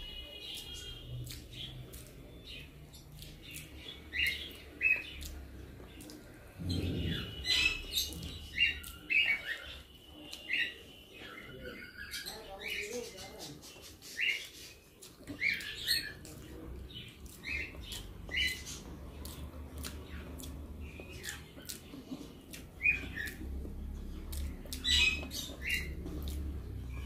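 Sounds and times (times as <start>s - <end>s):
lip smacking: 1.2s - 7.3s, 14.1s - 27.0s.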